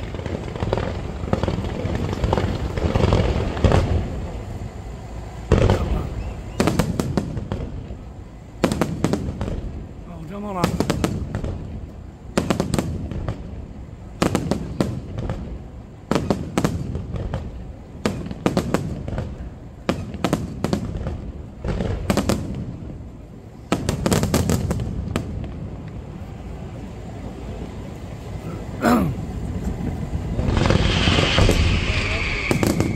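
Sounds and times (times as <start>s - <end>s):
fireworks crackle: 0.0s - 28.4s, 29.3s - 32.9s
low rumble: 25.4s - 32.9s
firework shell bursts and bangs: 30.4s - 32.9s.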